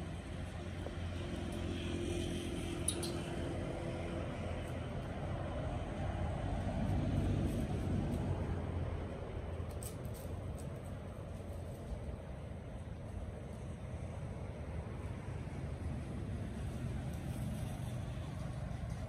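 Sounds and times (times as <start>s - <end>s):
vehicle engine rumbling: 0.0s - 19.0s.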